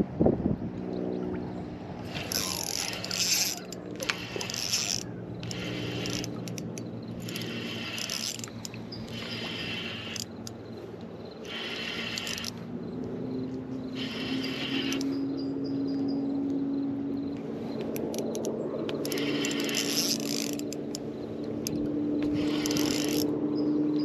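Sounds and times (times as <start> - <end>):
spinning reel being cranked: 2.1 - 10.7, 11.4 - 12.6, 13.9 - 15.2, 18.0 - 21.0, 21.6 - 23.3.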